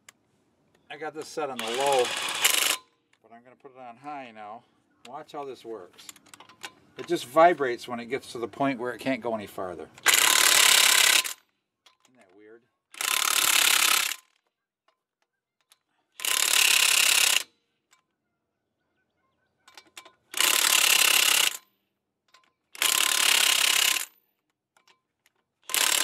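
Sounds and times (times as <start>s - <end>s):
impact wrench hammering lug nuts: 10.0s - 11.4s, 22.3s - 24.1s, 25.6s - 26.0s.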